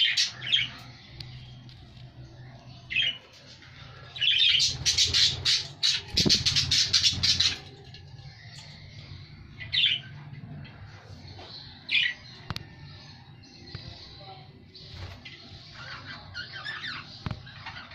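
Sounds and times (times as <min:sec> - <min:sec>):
budgerigars calling: 0:04.3 - 0:07.6.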